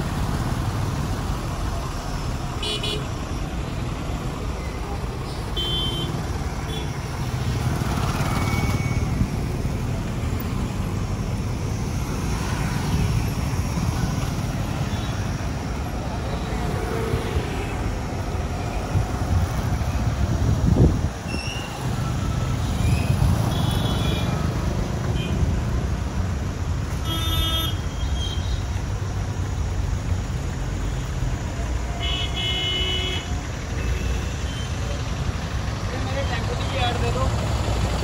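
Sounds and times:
cars and trucks passing: 0.0s - 38.0s
vehicle horns honking: 2.6s - 3.2s, 5.4s - 7.0s, 27.0s - 28.5s, 32.0s - 34.7s.

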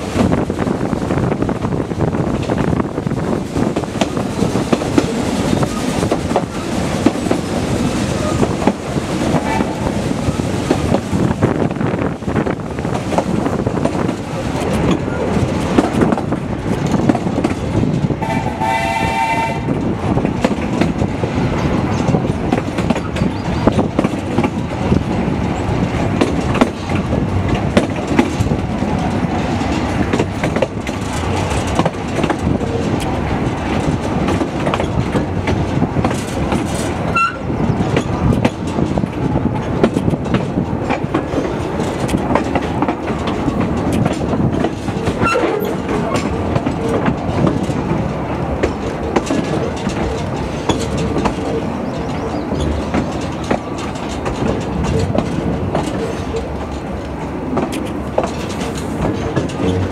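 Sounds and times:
train carriage rumble: 0.0s - 59.9s
steam locomotive whistle: 18.2s - 19.8s, 37.1s - 37.4s.

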